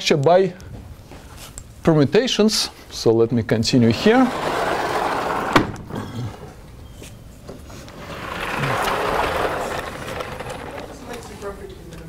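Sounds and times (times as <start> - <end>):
chalkboard panels sliding: 3.9 - 11.4.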